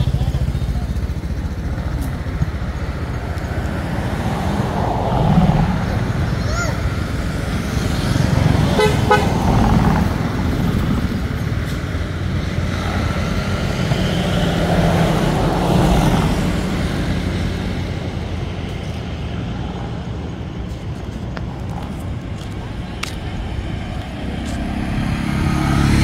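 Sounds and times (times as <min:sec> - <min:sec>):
road traffic rumble: 0:00.0 - 0:26.0
vehicle horn toot: 0:08.7 - 0:09.4.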